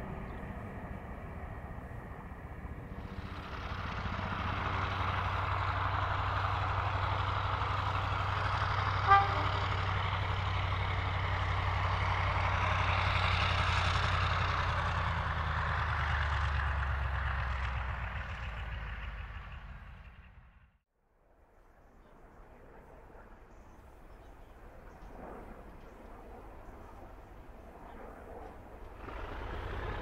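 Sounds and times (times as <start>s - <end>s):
diesel locomotive passing: 0.0s - 20.8s, 28.4s - 30.0s
train horn toot: 8.8s - 10.0s.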